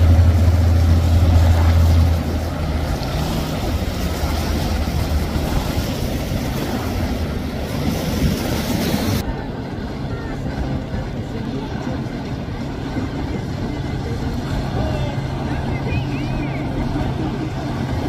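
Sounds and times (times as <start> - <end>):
constant rushing noise: 0.0 - 18.0
motorboat engine droning: 0.0 - 18.0.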